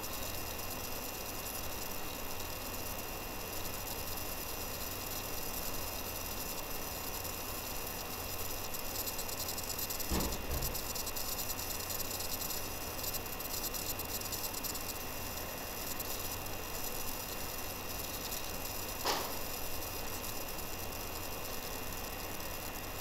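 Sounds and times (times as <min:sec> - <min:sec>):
dull thump: 0:10.1 - 0:10.8.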